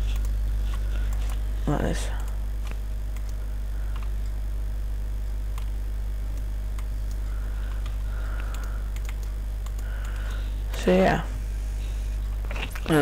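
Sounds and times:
low electrical hum and hiss: 0.0 - 13.0
faint clicks: 6.3 - 10.8.

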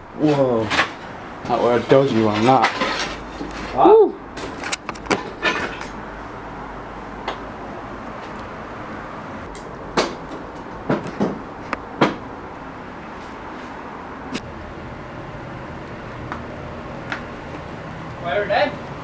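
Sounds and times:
sharp knocks and creaks: 9.5 - 12.2.

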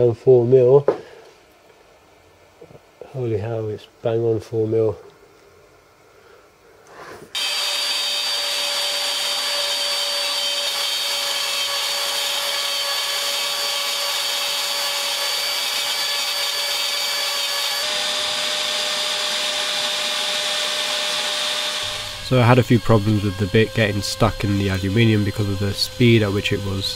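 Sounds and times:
router spindle whining: 7.4 - 26.9.

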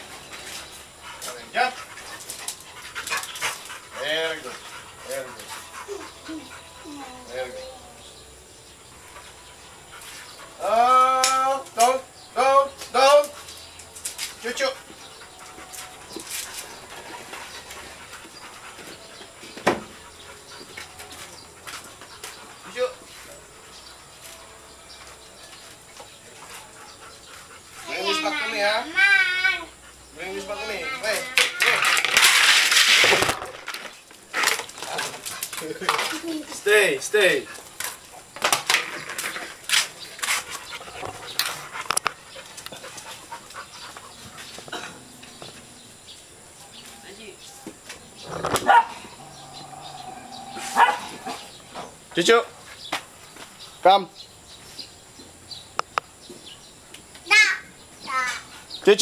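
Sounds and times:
dog panting: 0.6 - 8.0, 9.0 - 10.7, 13.3 - 24.1, 25.8 - 29.0, 29.6 - 31.4, 39.9 - 44.7.

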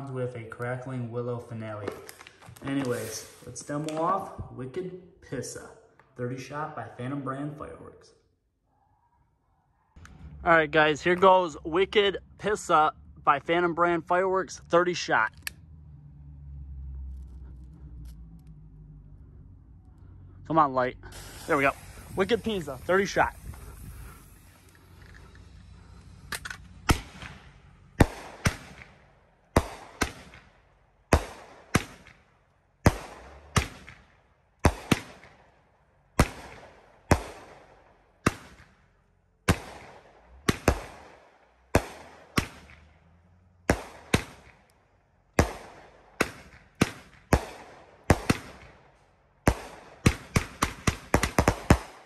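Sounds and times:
fireworks bangs: 1.8 - 4.6, 21.1 - 29.0.

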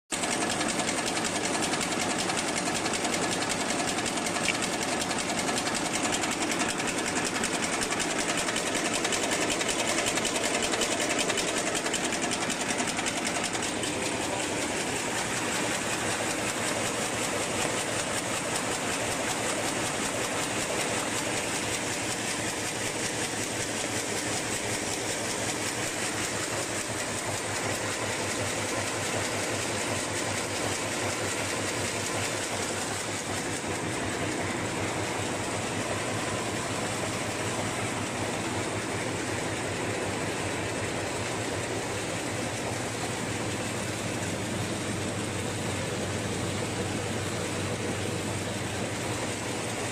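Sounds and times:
machine clattering: 0.1 - 49.9.

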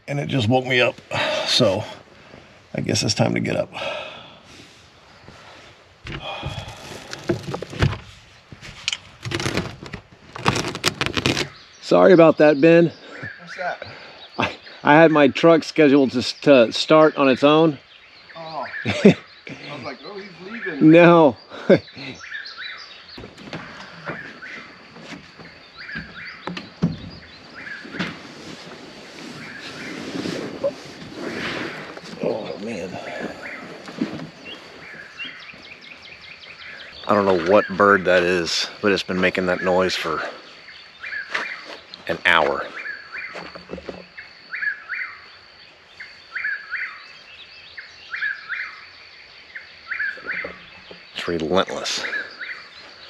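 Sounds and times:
bird calling in paired notes: 11.8 - 15.4.

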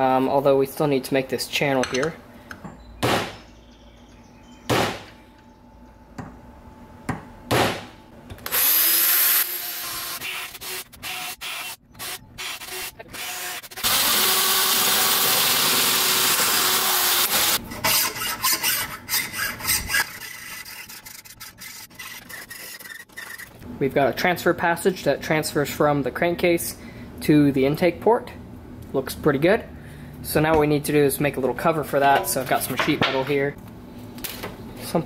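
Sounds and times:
battery drill boring: 8.5 - 17.6
file rasping on metal: 17.6 - 23.5.

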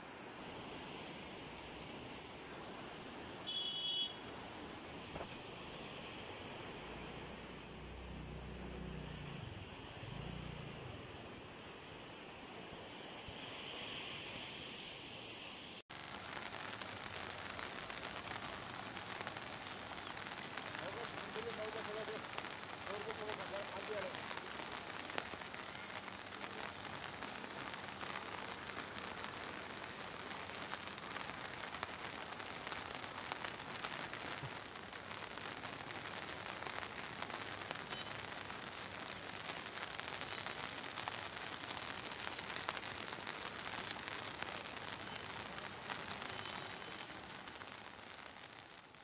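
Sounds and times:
falling rain: 0.0 - 49.0.

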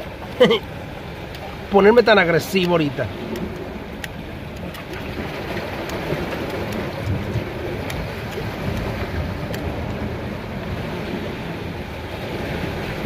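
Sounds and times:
surf washing on rocks: 0.0 - 13.0
wind on the microphone: 2.6 - 13.0.

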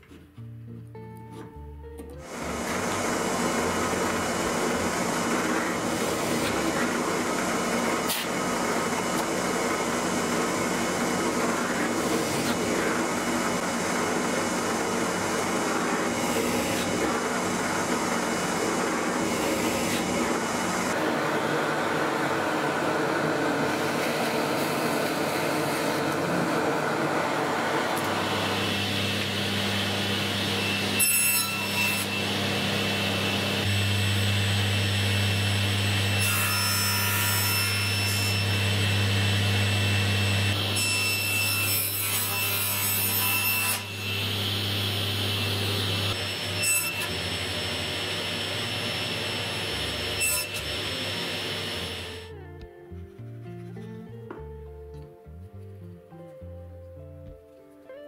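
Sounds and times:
dust extraction vacuum: 2.2 - 43.1, 43.7 - 52.3
saw blade cutting wood: 2.2 - 52.3
table saw motor hum: 2.2 - 52.3.

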